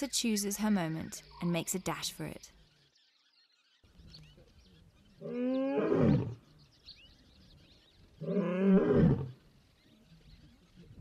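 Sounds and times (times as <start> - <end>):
lion roaring: 5.2 - 6.4, 8.2 - 9.4.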